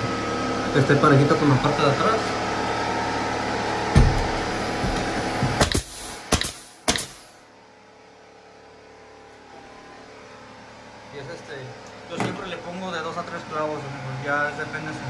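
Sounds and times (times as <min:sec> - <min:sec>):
nails knocked into wood: 0:04.8 - 0:07.2.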